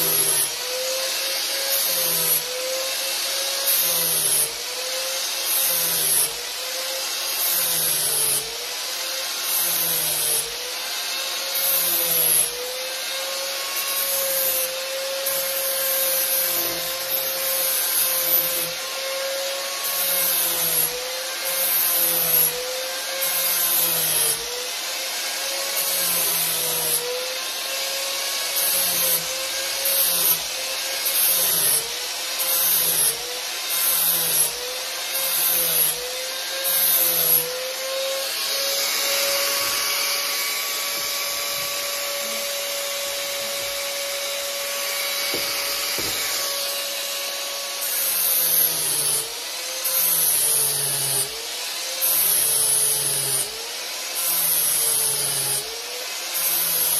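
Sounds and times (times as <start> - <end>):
angle grinder motor whine: 32.7 - 49.6
flap wheel sanding wood: 36.4 - 47.2.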